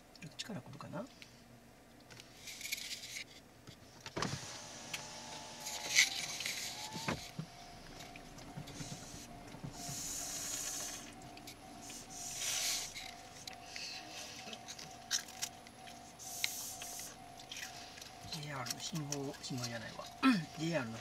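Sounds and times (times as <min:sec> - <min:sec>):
power window clunk: 0:04.1 - 0:11.6
power window motor whine: 0:04.2 - 0:21.0
steady tone: 0:04.4 - 0:21.0.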